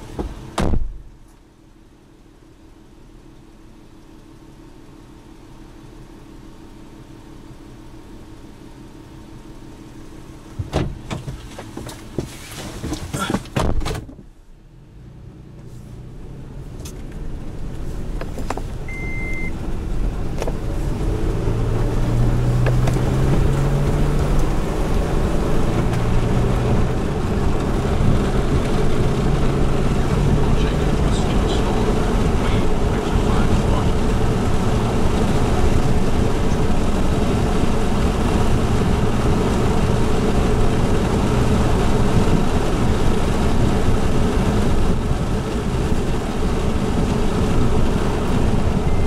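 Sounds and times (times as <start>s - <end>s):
car engine: 0.0s - 49.0s
tyres on dirt road: 0.0s - 49.0s
short beep: 18.9s - 19.6s.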